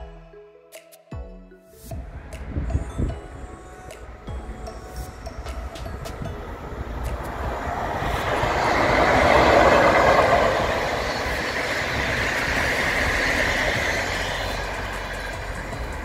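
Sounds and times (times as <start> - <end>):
train wheels rushing on rails: 5.4 - 16.0.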